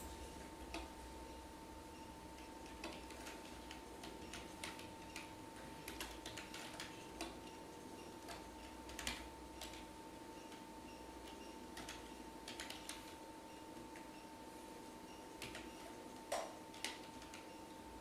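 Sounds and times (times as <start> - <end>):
faint steady whine: 0.0 - 18.0
keyboard keys clicking: 2.6 - 7.4, 8.3 - 9.9, 11.8 - 13.2, 15.4 - 17.5.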